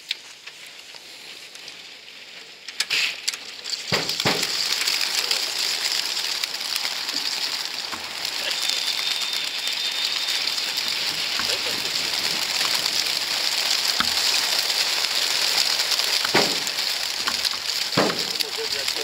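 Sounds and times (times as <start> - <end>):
whirr of pigeon wingbeats: 3.9 - 19.0
sharp knocks: 16.3 - 16.7.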